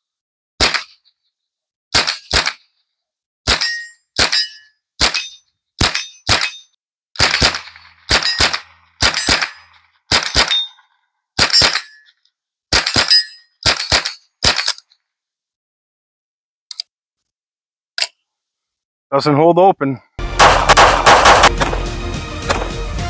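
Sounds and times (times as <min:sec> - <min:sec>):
rifle shots: 0:00.6 - 0:01.0, 0:02.0 - 0:02.6, 0:03.5 - 0:06.6, 0:07.2 - 0:10.7, 0:11.4 - 0:12.0, 0:12.7 - 0:14.7, 0:20.3 - 0:21.9, 0:22.5 - 0:22.7
steel targets ringing: 0:03.6 - 0:06.7, 0:08.2 - 0:08.6, 0:13.0 - 0:13.5.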